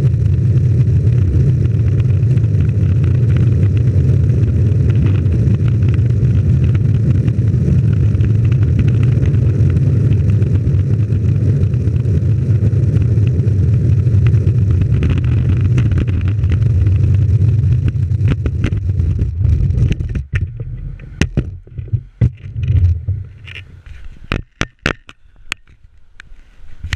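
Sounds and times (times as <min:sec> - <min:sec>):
longboard wheels rolling on asphalt: 0:00.0 - 0:24.8
sharp knocks and clicks: 0:17.8 - 0:25.8.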